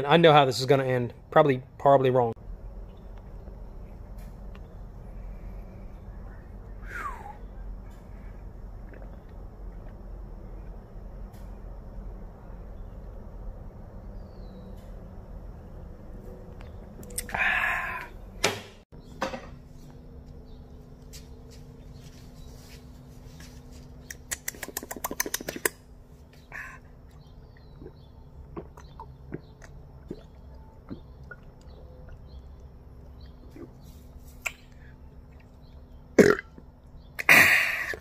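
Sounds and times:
swallowing: 8.8s - 10.0s, 26.4s - 33.9s, 36.2s - 38.0s
breathy exhale after drinking: 17.3s - 18.2s
quick run of clicks: 24.0s - 25.8s.

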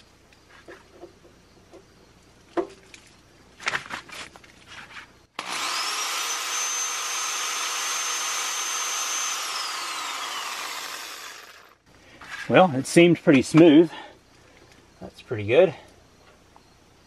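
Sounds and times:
drill motor whining: 5.4s - 11.8s.

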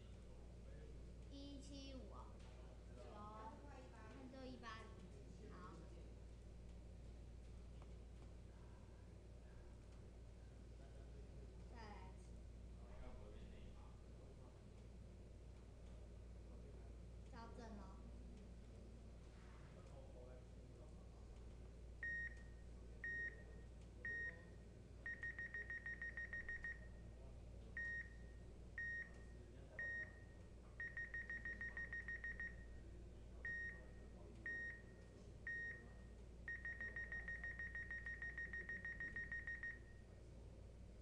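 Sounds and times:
high electronic beeps: 36.5s - 39.8s.

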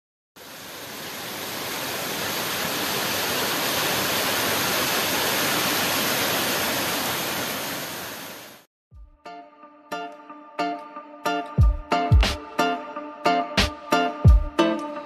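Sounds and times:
waterfall rushing: 0.4s - 8.6s.

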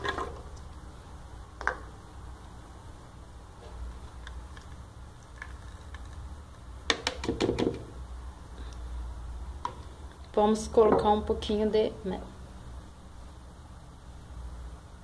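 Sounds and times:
plastic cup tapping blender jar: 6.9s - 7.9s.

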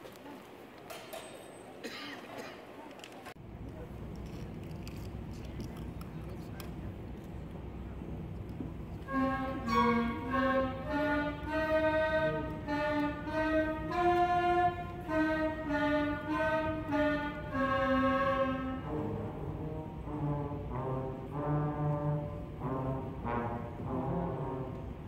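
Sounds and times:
low brass notes: 8.4s - 25.0s
flute melody: 9.0s - 25.0s.

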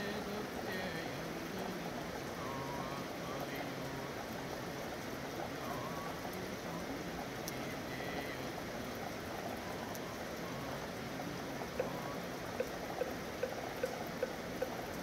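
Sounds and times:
steady rain: 0.0s - 15.0s
light regular taps: 11.7s - 15.0s.

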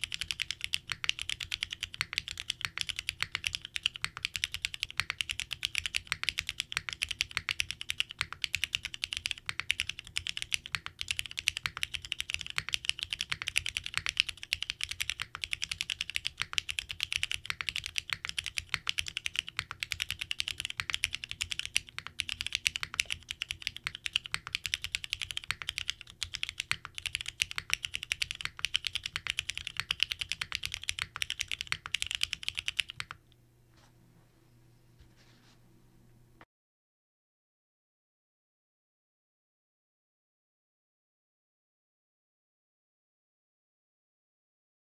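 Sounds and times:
fast typing on mechanical keyboard: 0.0s - 33.2s.

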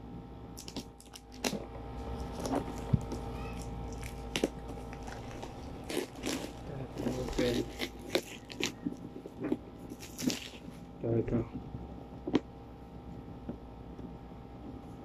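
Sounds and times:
shrink-wrap crinkling: 0.6s - 10.8s.

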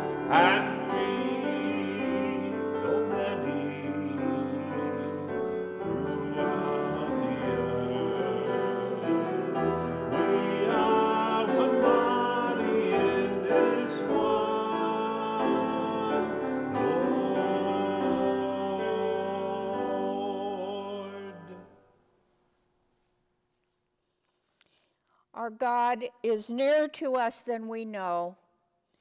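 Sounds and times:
grand piano accompaniment: 0.0s - 21.7s
man singing a hymn: 0.0s - 21.7s.

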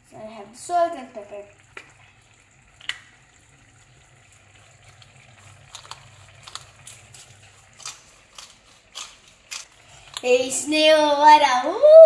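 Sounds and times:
salt grinder crunching: 5.5s - 10.2s.

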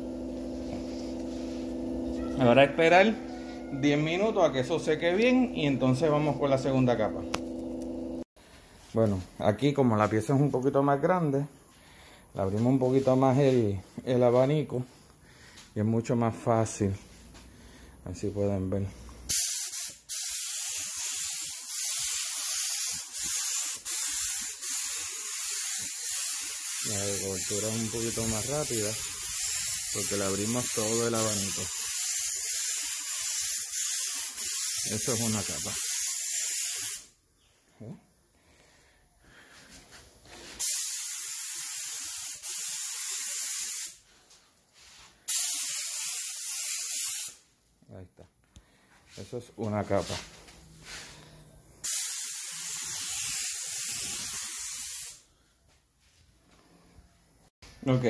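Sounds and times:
paint spray gun hissing: 19.3s - 37.1s, 40.5s - 44.0s, 45.2s - 47.4s, 51.8s - 55.3s.

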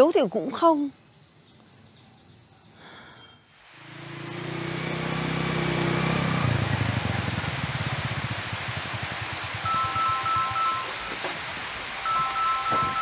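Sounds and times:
heavy rain pouring: 3.6s - 13.0s
small motorcycle engine: 3.8s - 10.8s.

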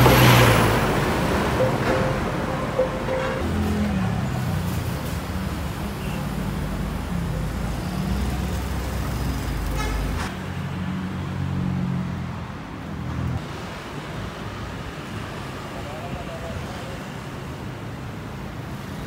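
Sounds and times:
brief high-pitched tone: 0.0s - 3.6s
car and bus engines passing: 0.0s - 19.0s.

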